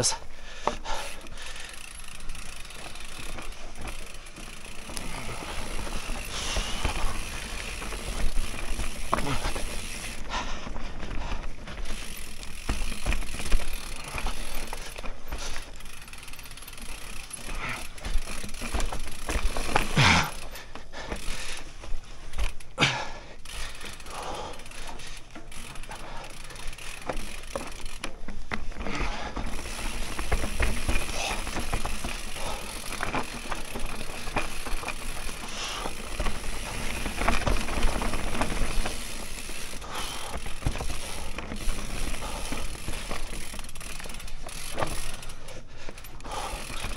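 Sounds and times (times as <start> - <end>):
bike chain rattling: 0.0 - 46.9
bike tyres on dirt: 0.0 - 46.9
bike knocking over bumps: 10.8 - 22.6, 26.6 - 45.2.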